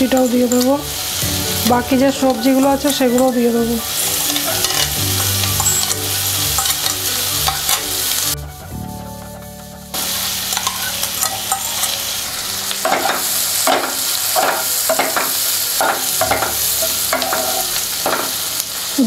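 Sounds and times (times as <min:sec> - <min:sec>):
vegetables sizzling in a pan: 0:00.0 - 0:08.4, 0:09.9 - 0:19.0
wooden spatula scraping a pan: 0:00.1 - 0:08.3.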